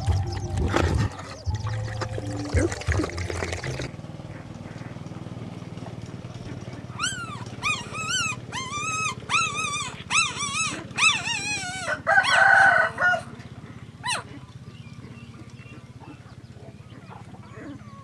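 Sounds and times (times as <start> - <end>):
puppy whining: 6.8 - 18.0.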